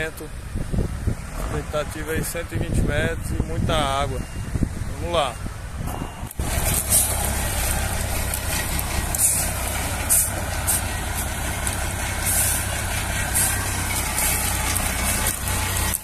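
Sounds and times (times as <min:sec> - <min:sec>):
diesel engine running: 0:04.2 - 0:16.0.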